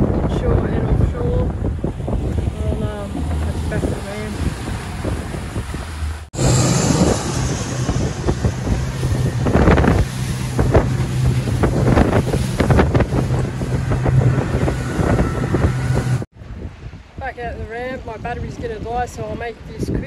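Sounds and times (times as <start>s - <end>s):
water rushing past hull: 0.0s - 19.7s
wind buffeting microphone: 0.0s - 20.0s
outboard motor humming: 1.0s - 16.3s.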